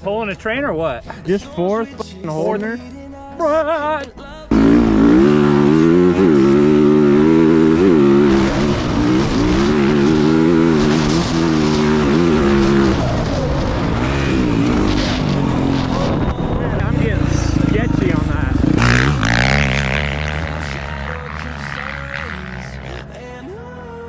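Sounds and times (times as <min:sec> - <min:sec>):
dirt bike engine revving: 0:04.5 - 0:23.3.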